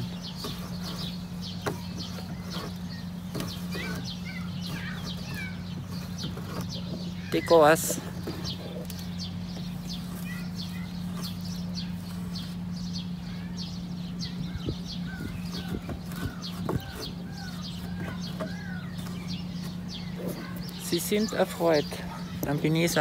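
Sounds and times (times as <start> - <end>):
birds chirping: 0.0 - 23.0
steady low hum: 0.0 - 23.0.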